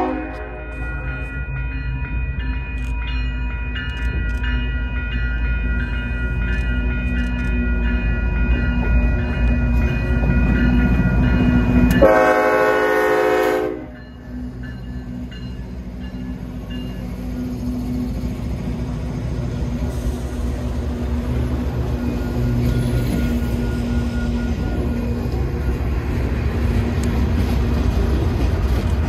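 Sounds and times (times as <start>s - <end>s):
train horn blast: 0.0s - 0.7s, 11.9s - 14.0s
freight train rumble: 0.0s - 29.0s
steady high tones: 13.8s - 27.0s.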